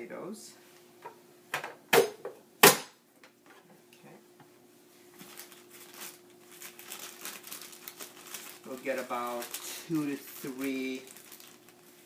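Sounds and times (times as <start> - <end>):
plastic bag rustling: 5.1 - 12.0.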